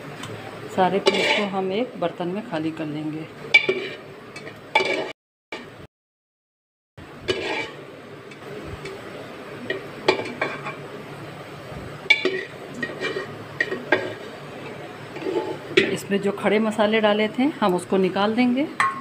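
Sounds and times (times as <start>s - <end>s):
spoon scraping in metal pot: 1.0s - 1.6s, 3.6s - 5.1s, 7.3s - 7.8s, 12.1s - 14.2s, 15.1s - 16.0s.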